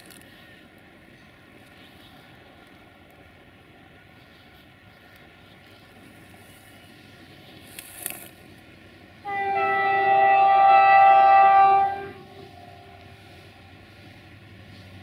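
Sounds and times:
locomotive horn blast: 0:09.2 - 0:13.2.

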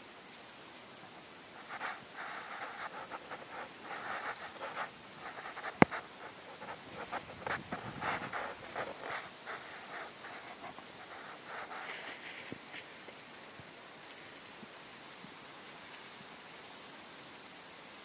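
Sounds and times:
footsteps through dry grass: 0:01.6 - 0:13.2.

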